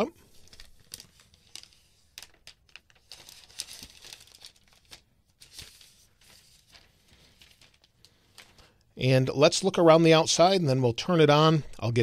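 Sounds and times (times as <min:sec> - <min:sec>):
plastic wrap crinkling: 0:00.1 - 0:08.8.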